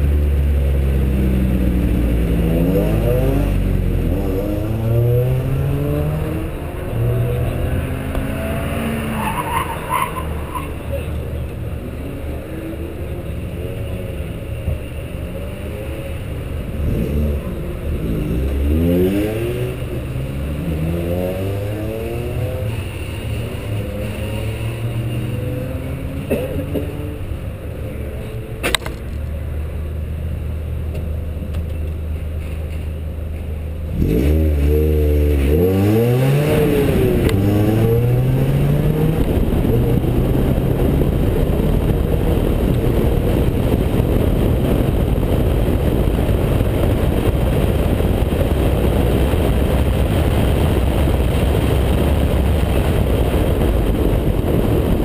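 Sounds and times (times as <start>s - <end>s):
car engine revving: 0.0s - 27.4s, 33.9s - 55.0s
wind noise: 33.9s - 55.0s.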